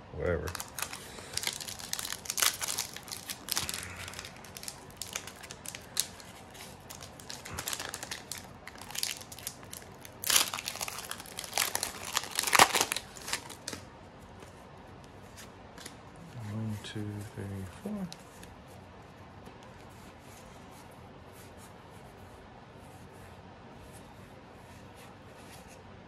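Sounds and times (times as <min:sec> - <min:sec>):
foil pack crinkling and tearing: 0:00.3 - 0:13.8.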